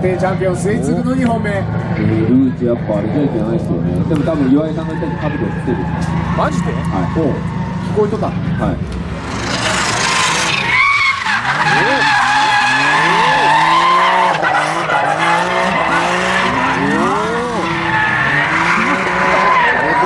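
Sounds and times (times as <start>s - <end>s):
small car engine revving: 5.9s - 20.0s
tyres squealing: 9.3s - 20.0s.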